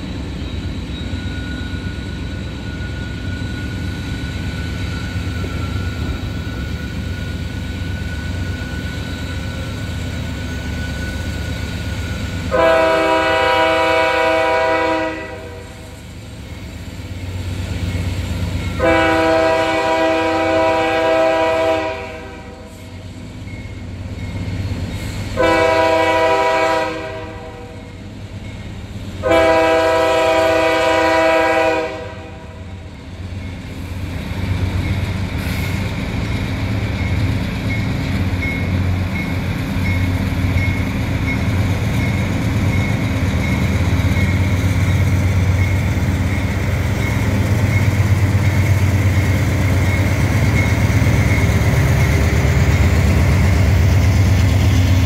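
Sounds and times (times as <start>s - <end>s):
train low rumble: 0.0s - 55.0s
locomotive air horn blasts: 12.5s - 15.9s, 18.8s - 22.8s, 25.4s - 27.9s, 29.2s - 32.7s.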